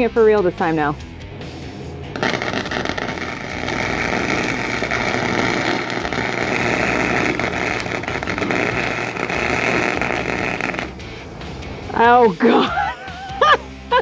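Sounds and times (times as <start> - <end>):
welder arc crackling: 1.5 - 12.2.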